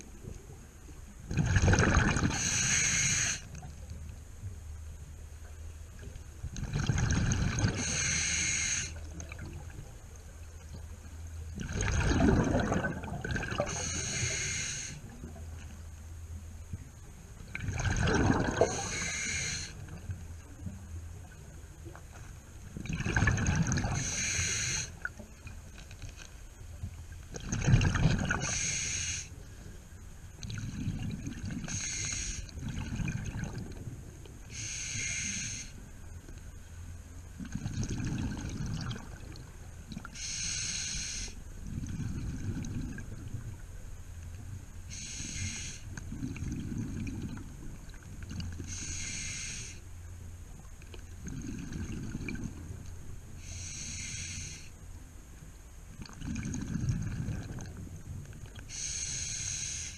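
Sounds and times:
exhaled bubbles rushing: 1.3 - 2.5, 6.5 - 7.9, 11.6 - 13.8, 17.5 - 19.1, 22.8 - 24.0, 27.4 - 28.5, 32.6 - 33.8, 37.4 - 39.4, 46.1 - 48.5, 51.2 - 52.6, 56.0 - 57.8
regulator hiss of inhaled air: 2.3 - 3.5, 7.8 - 9.0, 13.7 - 15.0, 18.7 - 19.8, 24.0 - 25.0, 28.4 - 29.4, 31.7 - 32.5, 34.5 - 35.8, 40.2 - 41.4, 44.9 - 45.9, 48.7 - 49.8, 53.4 - 54.8, 58.7 - 59.9.

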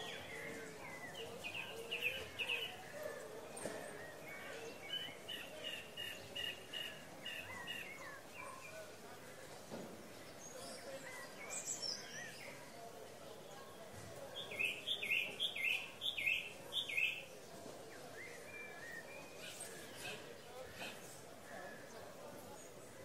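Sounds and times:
birds chirping and singing: 0.0 - 8.8, 14.4 - 17.3
murmur of distant voices: 0.0 - 23.0.

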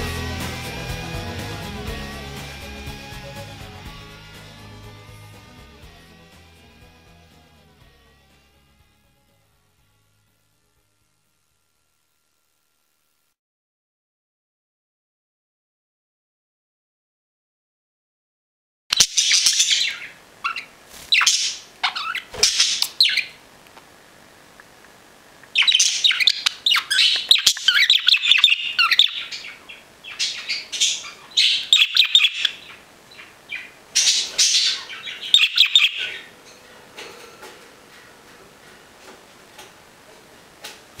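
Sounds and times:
budgerigar chattering and chirping: 18.9 - 23.4, 25.5 - 36.3.

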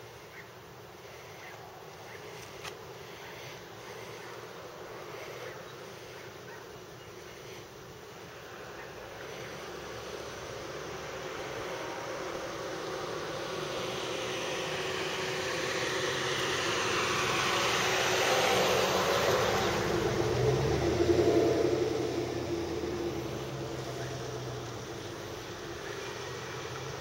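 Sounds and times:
motor vehicle passing by: 8.3 - 27.0.

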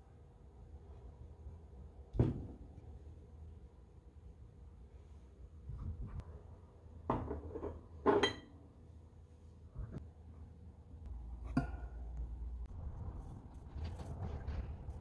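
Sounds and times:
glass jars knocking and clinking: 7.2 - 8.5.

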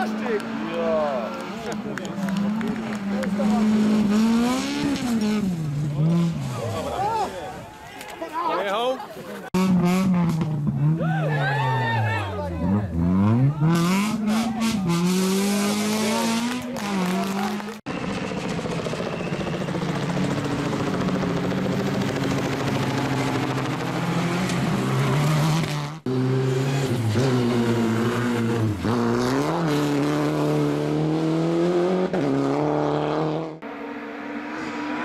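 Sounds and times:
rally car engine at full throttle: 0.0 - 7.6, 9.5 - 35.0.

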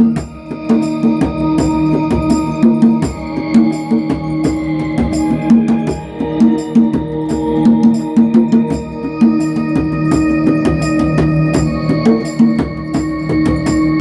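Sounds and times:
djembe slaps and bass tones: 0.0 - 14.0
keyboard sustained chords: 0.0 - 14.0.

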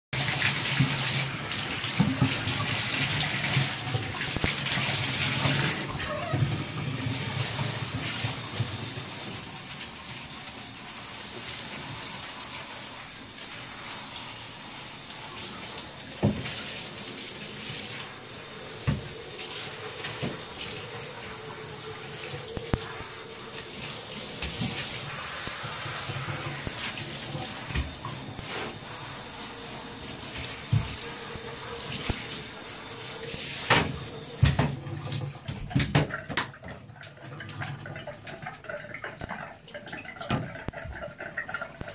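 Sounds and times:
shower spray hissing: 0.2 - 34.6.

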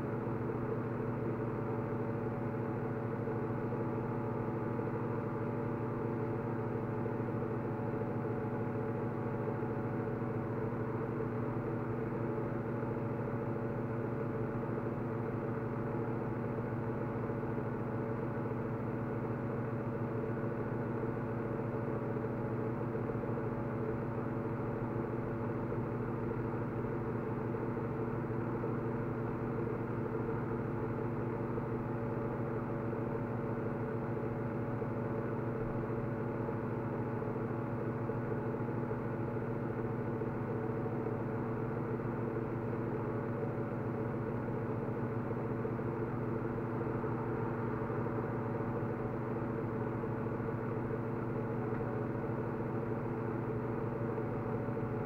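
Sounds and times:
steady mechanical hum: 0.0 - 55.0.

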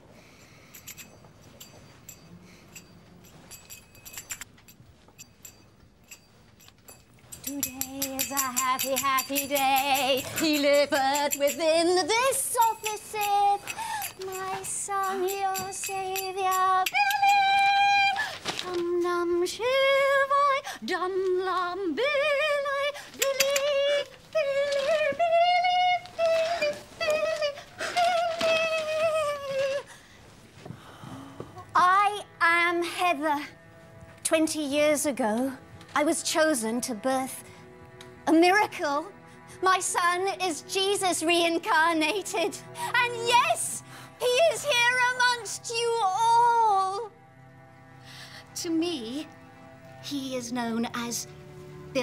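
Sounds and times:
small metal jingles: 0.2 - 18.2, 23.2 - 29.8
woman singing wordless chant: 7.4 - 29.9.

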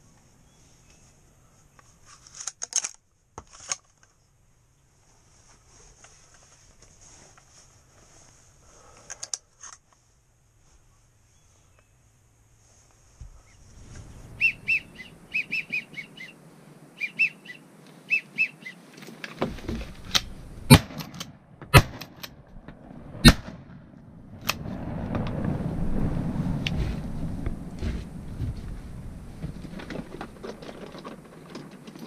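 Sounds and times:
low rustling: 12.4 - 16.9, 22.3 - 32.0
bird whistling: 14.4 - 16.4, 17.0 - 18.8.

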